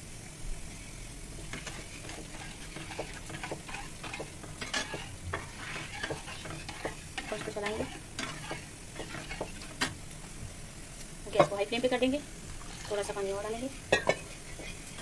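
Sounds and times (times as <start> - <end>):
metal spatula scraping frying pan: 1.4 - 9.9.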